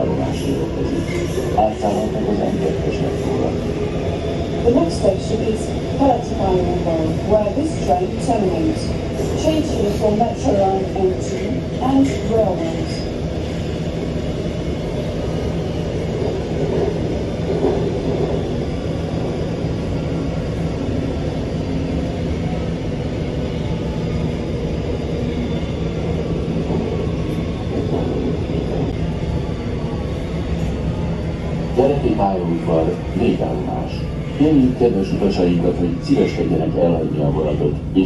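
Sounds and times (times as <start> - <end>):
train wheels rumbling on rail: 0.0 - 38.0.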